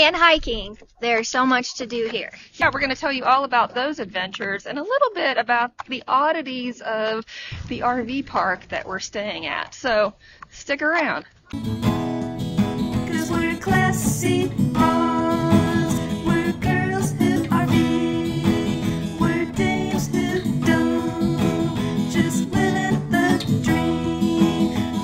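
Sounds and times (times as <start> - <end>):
strummed acoustic guitar: 11.5 - 25.0
person singing: 13.0 - 25.0.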